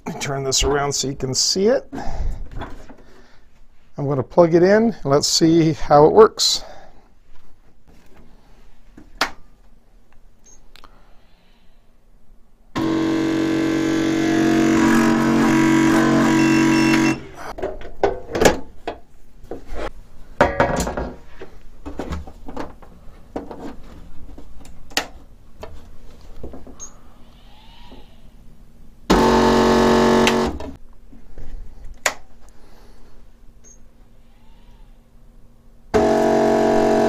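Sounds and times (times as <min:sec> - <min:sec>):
stepper motor buzzing: 0:12.8 - 0:17.4, 0:29.1 - 0:30.8, 0:36.0 - 0:37.0.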